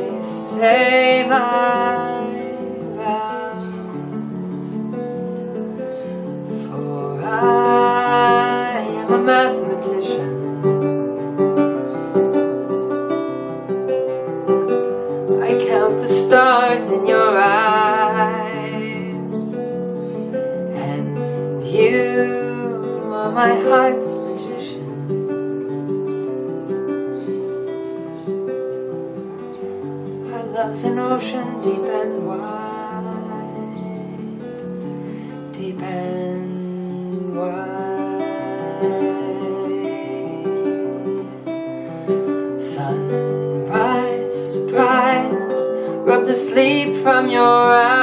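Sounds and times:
acoustic guitar accompaniment: 0.0 - 48.0
man singing: 20.8 - 24.8, 42.6 - 43.1, 43.7 - 48.0.

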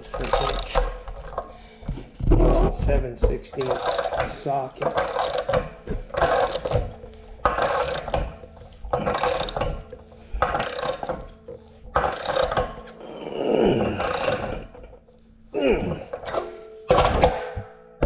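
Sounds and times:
wrench scraping on pipe fitting: 0.0 - 2.0, 3.3 - 13.0, 13.8 - 15.3.

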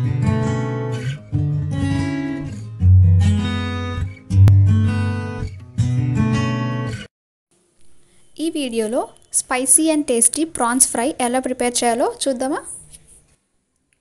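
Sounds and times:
strummed guitar chords: 0.0 - 7.1.

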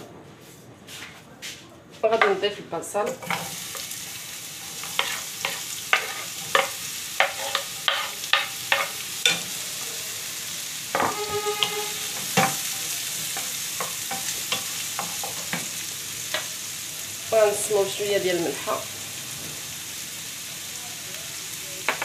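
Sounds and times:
onion sizzling in hot oil: 2.8 - 22.0
short squeak: 11.0 - 12.2.

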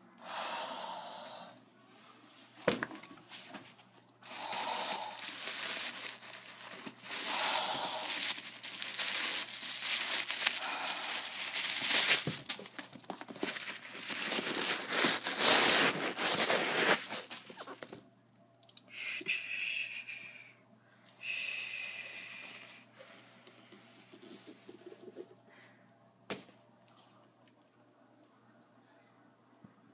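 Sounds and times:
shoes rustling and crinkling: 4.3 - 18.0.

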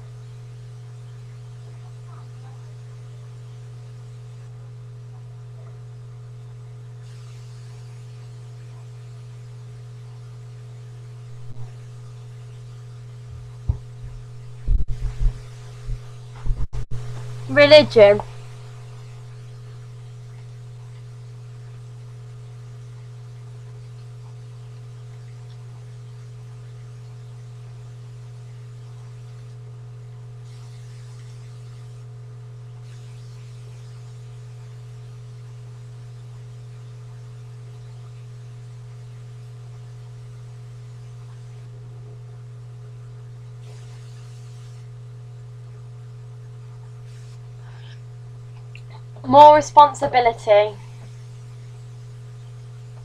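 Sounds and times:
low electrical hum: 0.0 - 53.0
faint hiss: 7.0 - 9.2, 30.4 - 32.1, 43.6 - 45.0, 47.0 - 48.0.

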